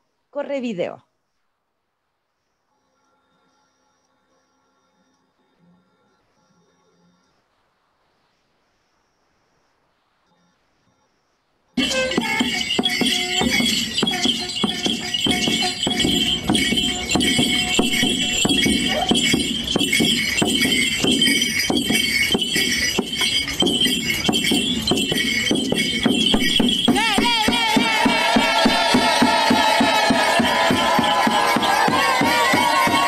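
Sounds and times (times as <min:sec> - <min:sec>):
drum beating with jingling: 0:11.8 - 0:33.0.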